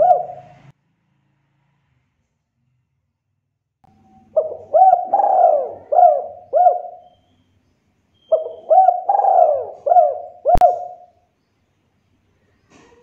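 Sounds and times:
dove cooing: 0.0 - 0.7, 4.1 - 7.2, 8.3 - 11.1.

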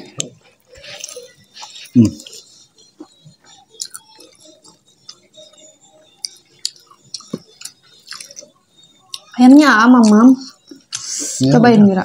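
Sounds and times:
close chewing and wet mouth sounds: 3.0 - 5.3, 6.2 - 9.4.

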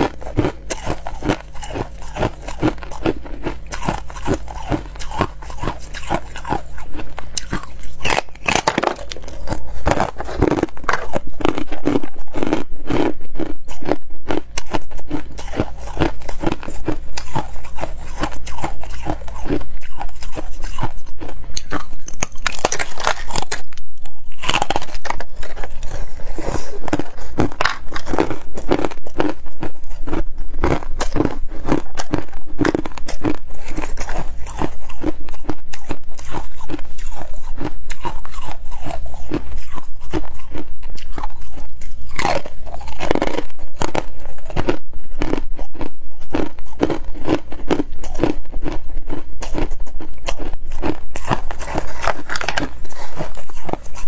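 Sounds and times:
ice crunching while chewed: 0.0 - 54.0.

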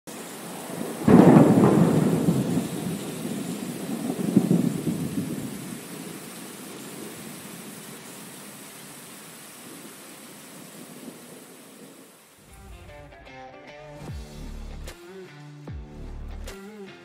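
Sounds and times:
rain-like hiss: 0.1 - 12.8
thunder crack and rumble: 0.4 - 7.9.

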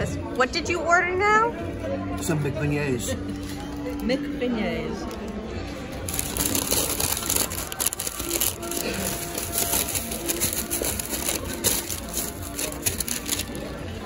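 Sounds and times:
background music: 0.0 - 14.0
paper bag crinkling: 6.1 - 13.8.

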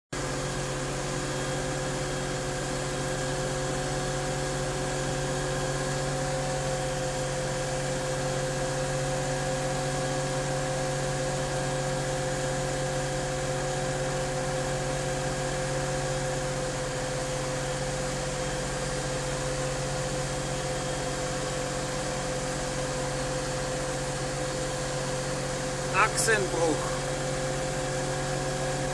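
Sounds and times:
tractor diesel engine droning: 25.9 - 27.2.

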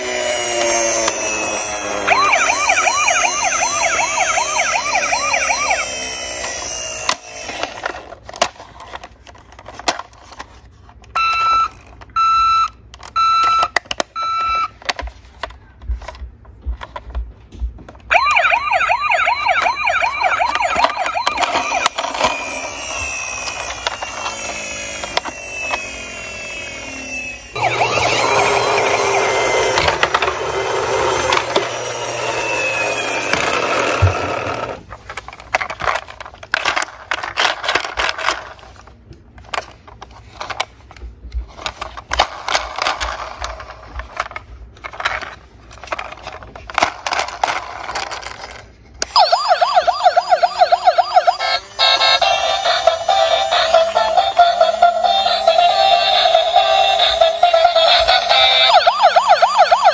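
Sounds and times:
toy siren warbling: 0.0 - 8.0, 18.1 - 34.8, 49.1 - 59.9
plastic toy clicks and rattles: 0.6 - 10.6, 20.4 - 40.9, 41.5 - 49.2.

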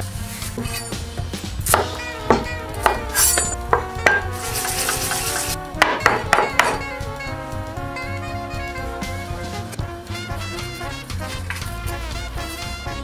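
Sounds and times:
light background music: 0.0 - 13.0
hiss: 4.4 - 5.6.

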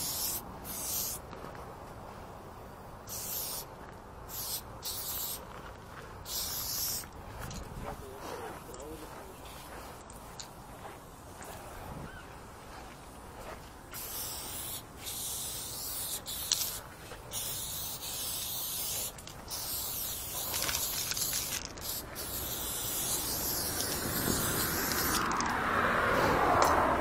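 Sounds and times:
spray paint can hissing: 0.0 - 1.3, 3.0 - 3.7, 4.3 - 5.5, 6.2 - 7.5, 13.9 - 25.5
traffic noise: 0.0 - 27.0.

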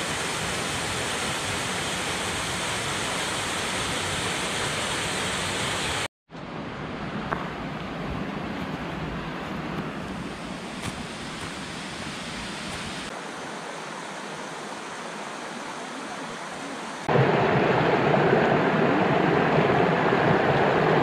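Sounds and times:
stream running over rocks: 7.2 - 21.0.

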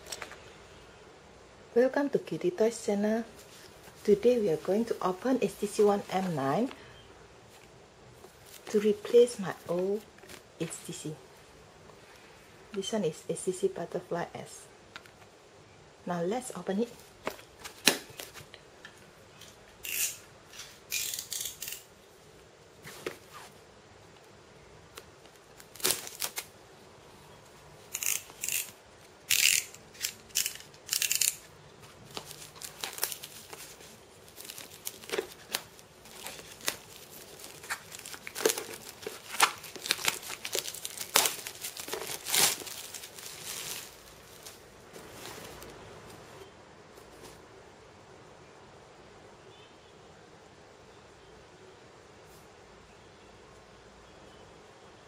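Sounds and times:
packaging tearing and crinkling: 25.6 - 26.5, 27.9 - 45.8.

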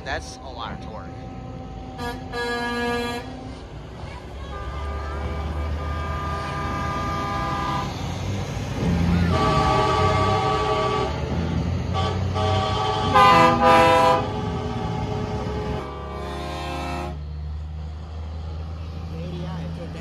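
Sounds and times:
diesel engines rumbling: 0.0 - 20.0
truck air horns: 1.8 - 3.7, 4.4 - 8.2, 8.8 - 17.3.

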